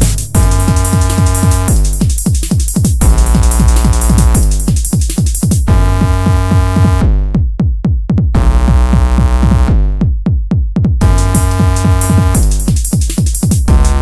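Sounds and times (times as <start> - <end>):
drum and bass track: 0.0 - 14.0.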